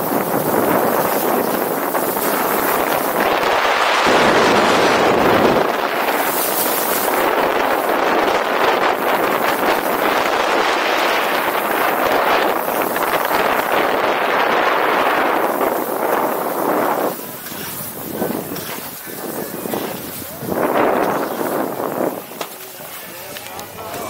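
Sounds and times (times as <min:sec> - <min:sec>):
wind buffeting microphone: 0:00.0 - 0:23.0
skis scraping over snow: 0:00.0 - 0:24.0.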